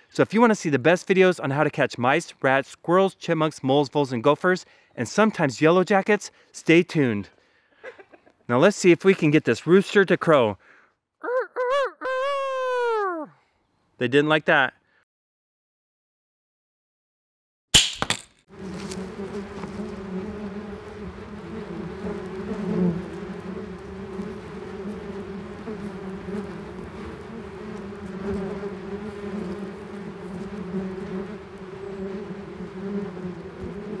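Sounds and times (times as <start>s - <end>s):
yellow jackets buzzing: 18.5s - 34.0s.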